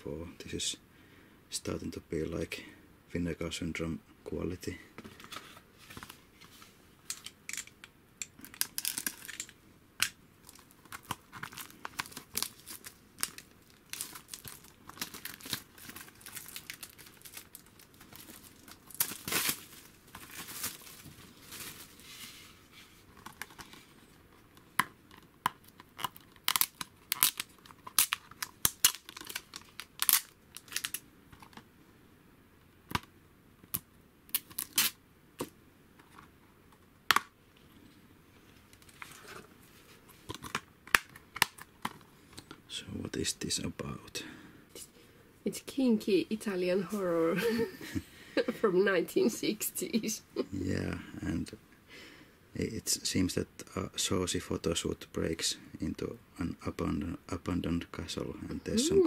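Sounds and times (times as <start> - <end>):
plastic wrap crinkling and tearing: 8.4 - 22.3, 25.6 - 31.0, 33.7 - 35.0.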